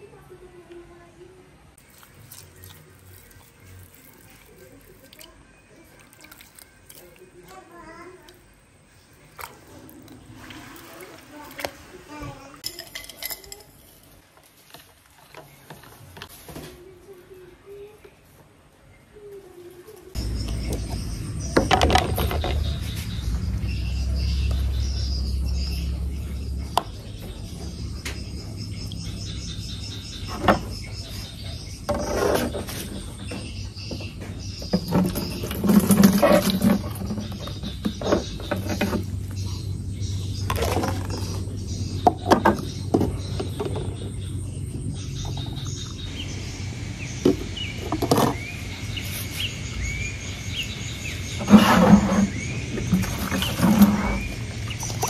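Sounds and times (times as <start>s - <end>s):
liquid splashing into watering can: 1.8s - 7.3s, 9.3s - 12.1s
insects chirping: 20.1s - 55.0s
plastic containers clattering: 20.2s - 23.3s, 31.9s - 39.4s, 40.4s - 44.3s, 47.2s - 48.6s, 51.2s - 55.0s.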